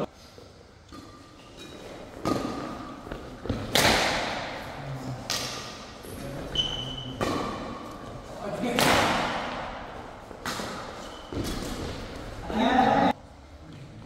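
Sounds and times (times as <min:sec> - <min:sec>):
rackets hitting shuttlecock: 0:00.9 - 0:06.0, 0:06.7 - 0:08.0, 0:08.7 - 0:12.3
shoe squeaking on court: 0:06.3 - 0:07.4, 0:10.9 - 0:12.1.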